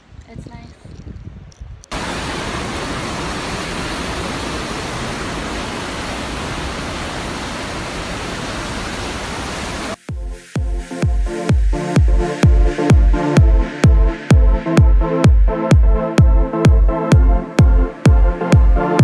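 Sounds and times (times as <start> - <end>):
whitewater rapids rushing: 1.9 - 10.0.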